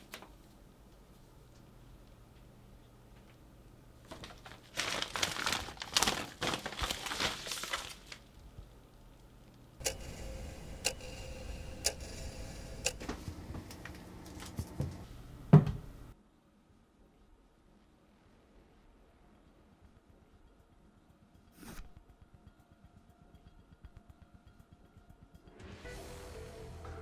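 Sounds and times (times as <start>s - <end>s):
paper rustling and crinkling: 4.0s - 8.4s
sharp ticking: 9.5s - 13.0s, 19.7s - 25.8s.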